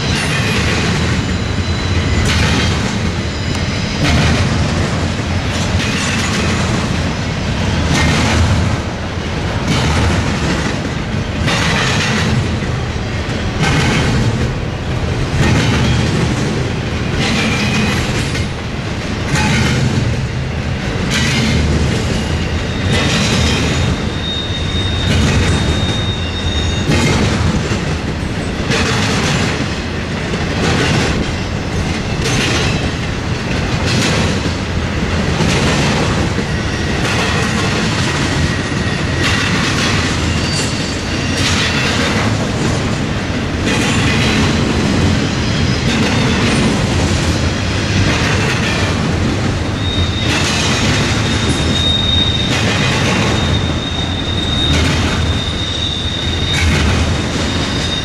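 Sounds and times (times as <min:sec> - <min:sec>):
high wheel squeal: 0:00.0 - 0:04.4, 0:22.2 - 0:27.2, 0:38.3 - 0:42.0, 0:45.2 - 0:46.7, 0:49.7 - 0:58.0
train wheels clacking: 0:00.0 - 0:58.0.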